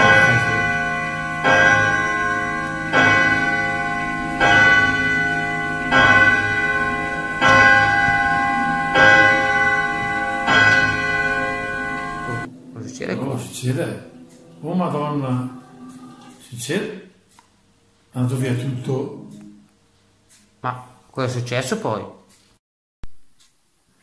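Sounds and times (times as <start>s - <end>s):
deep bell-like toll: 0.0s - 16.6s.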